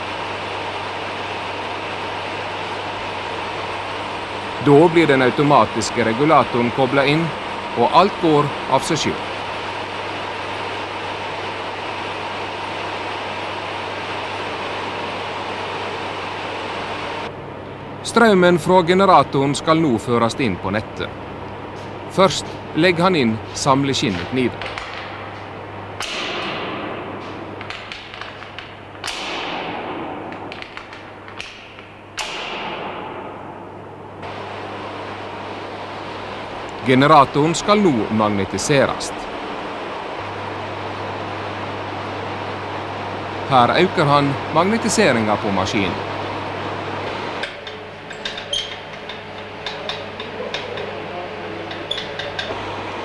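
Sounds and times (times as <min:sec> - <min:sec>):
generator humming: 0:00.0 - 0:53.0
rheostats clicking: 0:27.4 - 0:32.9, 0:47.4 - 0:52.6
metallic disconnector clacks: 0:47.4 - 0:51.0, 0:51.6 - 0:52.6.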